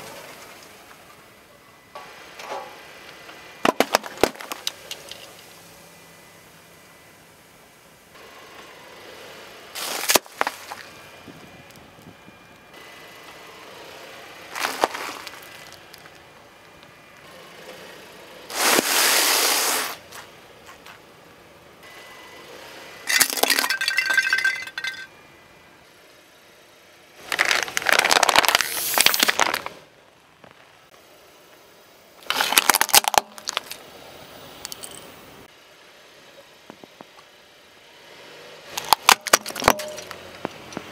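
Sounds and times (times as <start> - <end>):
car tyre crushing small objects: 3.6 - 5.6, 9.8 - 12.6, 14.5 - 16.9, 23.1 - 25.1, 27.2 - 30.7, 32.2 - 33.9, 38.7 - 40.9.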